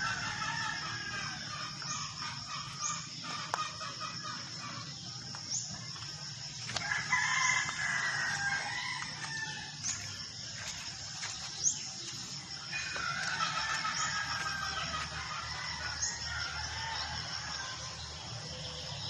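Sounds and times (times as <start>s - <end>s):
rooster crowing: 0.0s - 1.9s, 6.8s - 9.8s, 12.7s - 18.0s.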